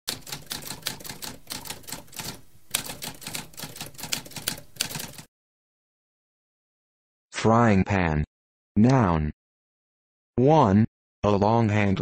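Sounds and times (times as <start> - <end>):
typewriter keys typing: 0.1 - 5.3.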